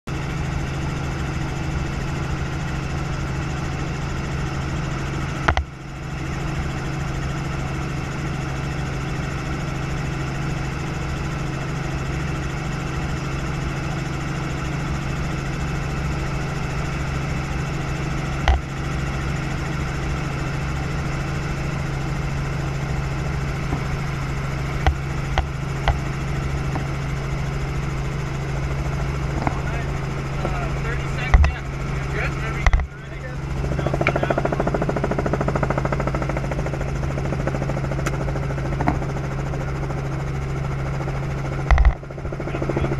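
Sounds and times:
helicopter engine and rotor drone: 0.1s - 42.9s.

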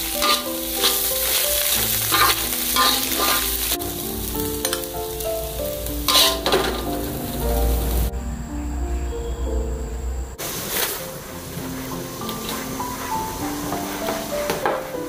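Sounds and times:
berries sizzling in a wok: 0.0s - 9.4s, 10.4s - 15.0s
metal spatula scraping a pan: 0.1s - 3.7s, 6.0s - 7.2s, 10.6s - 14.9s.

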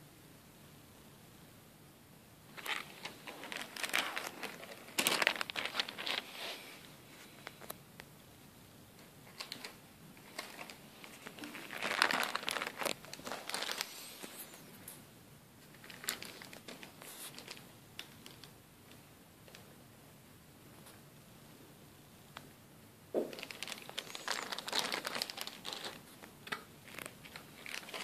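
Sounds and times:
plastic bags crinkling: 2.5s - 6.5s, 9.3s - 14.6s, 15.7s - 18.5s, 23.2s - 28.0s.

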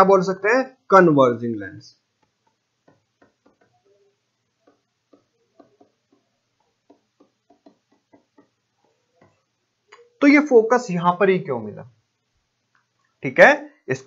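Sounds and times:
stylus tapping on tablet: 2.1s - 10.1s.

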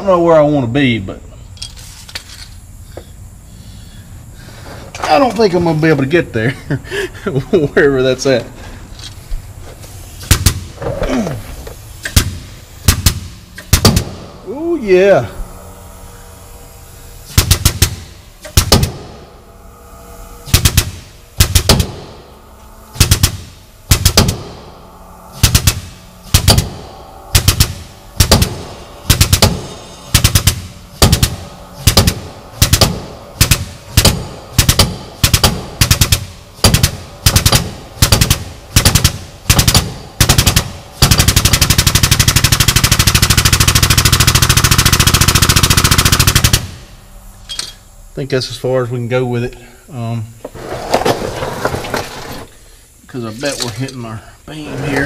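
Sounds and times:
air pump chattering: 9.0s - 46.8s.

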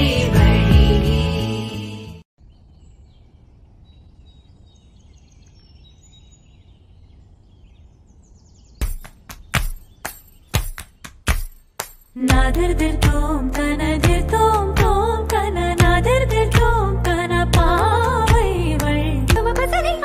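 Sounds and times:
music: 0.0s - 2.3s, 12.2s - 20.0s
small birds chirping: 2.4s - 11.8s
sharp percussive beats: 8.8s - 13.2s.

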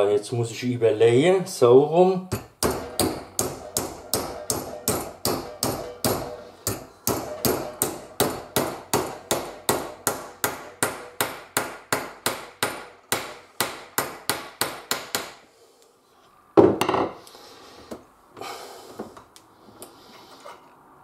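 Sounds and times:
hammer striking metal strip: 2.3s - 15.4s.

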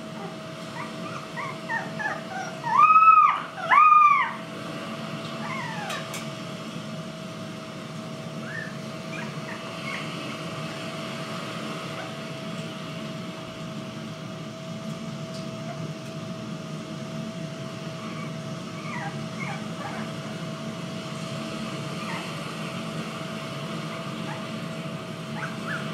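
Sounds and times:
puppies whining: 0.0s - 4.5s, 5.2s - 6.3s, 8.3s - 11.0s, 11.8s - 12.4s, 17.3s - 25.9s
steady hum and hiss: 0.0s - 25.9s.

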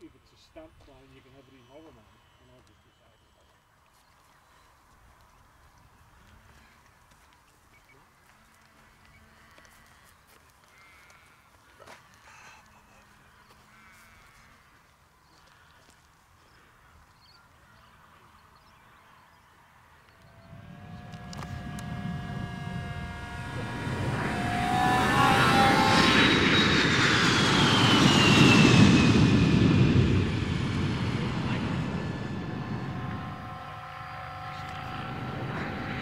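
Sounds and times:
model airplane flying past: 16.5s - 36.0s.

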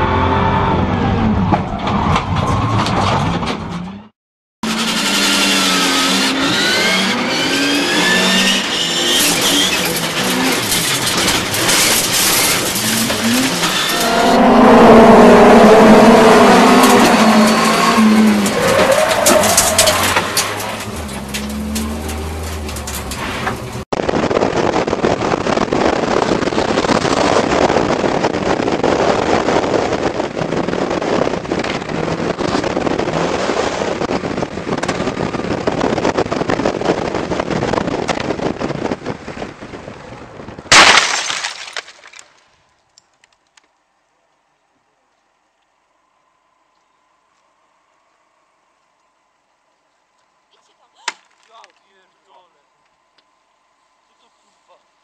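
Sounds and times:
racing car engine revving: 4.6s - 23.6s.

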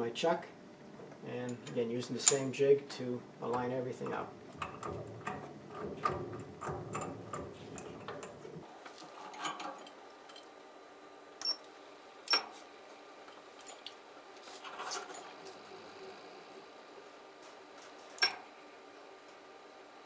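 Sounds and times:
faint steady hum: 0.0s - 20.0s
metal clicks and knocks: 3.6s - 8.6s.

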